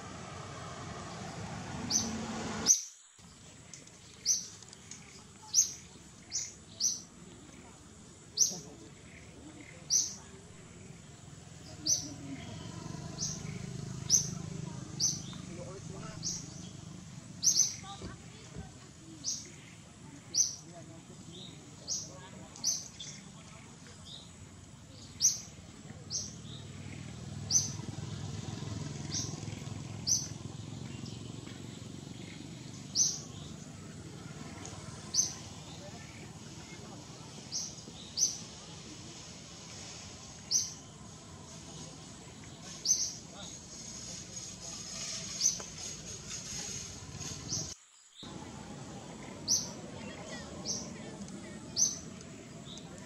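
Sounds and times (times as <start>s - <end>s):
high falling bird chirp: 9.6s - 18.0s.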